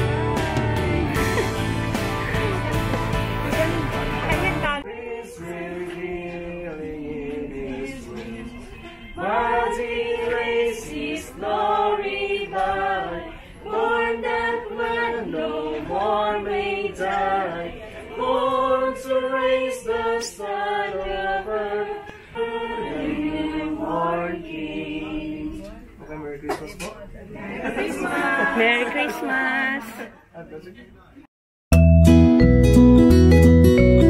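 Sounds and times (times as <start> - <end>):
group singing unaccompanied: 0.0 - 25.9, 27.4 - 29.8.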